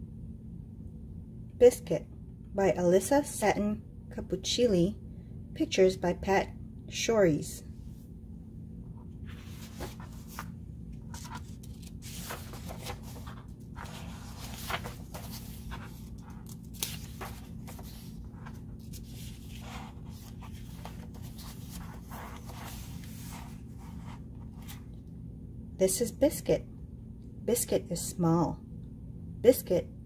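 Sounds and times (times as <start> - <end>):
steady low hum: 0.0 - 30.0
book pages turning: 9.0 - 25.0
paper rustling: 9.1 - 25.0.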